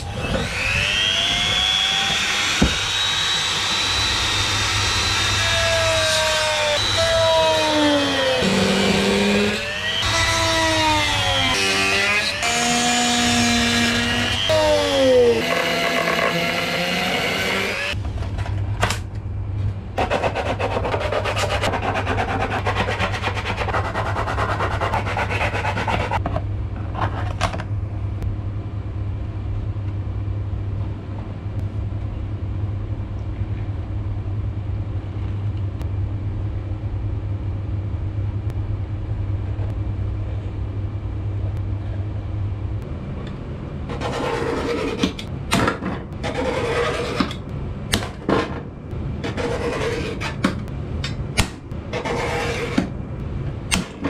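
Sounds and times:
low hum: 0.0 - 54.0
hand tool scraping on metal: 52.0 - 52.9.

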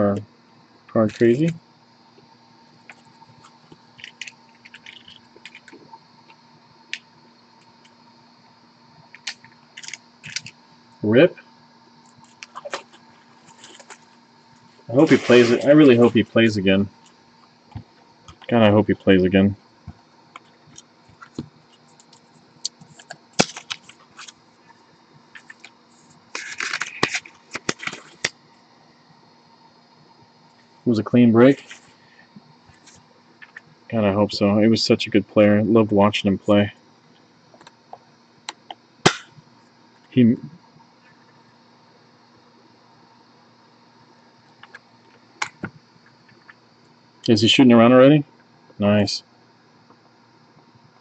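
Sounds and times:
cards and packaging rustling: 22.8 - 24.4, 26.3 - 28.3.

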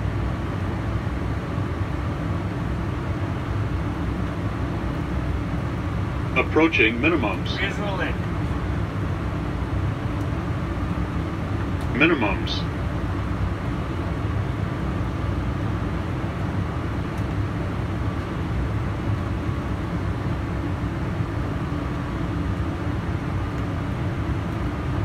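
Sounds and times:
low rumble of airflow and engines: 0.0 - 25.0.

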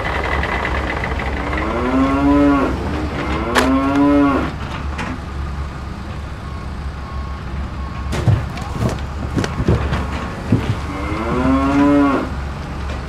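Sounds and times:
cow mooing: 1.4 - 4.6, 10.6 - 12.4.

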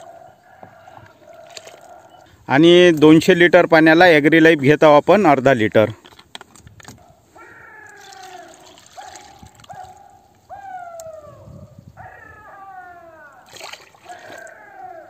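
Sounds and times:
animal calling: 7.0 - 15.0.

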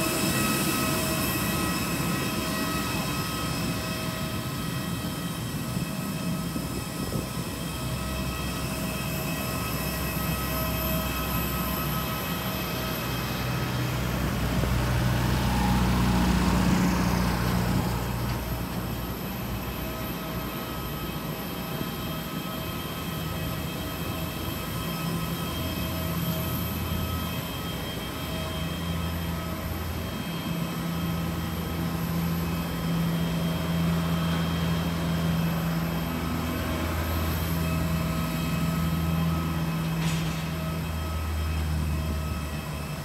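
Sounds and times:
steady whining tones: 0.0 - 43.0
vehicle rumble and hum: 13.5 - 19.2.

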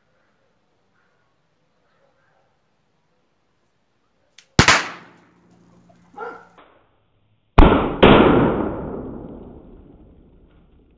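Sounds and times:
loud gunshot bangs: 4.6 - 5.2, 7.6 - 9.2.

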